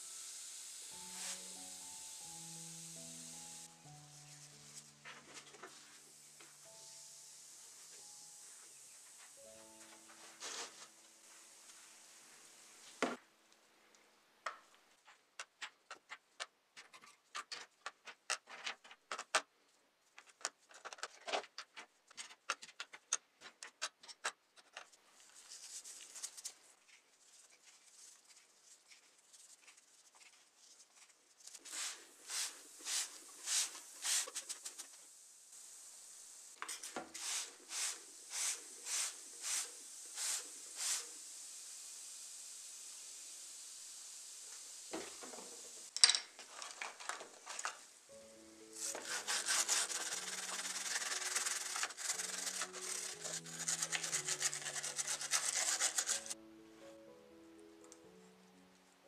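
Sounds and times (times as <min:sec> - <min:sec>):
rhythmic hissing strokes: 0:00.0 - 0:13.0, 0:31.4 - 0:46.0, 0:48.0 - 0:56.4.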